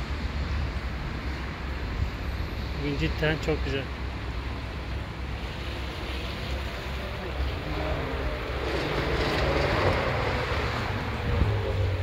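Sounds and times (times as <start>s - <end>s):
wind on microphone: 4.8s - 12.0s.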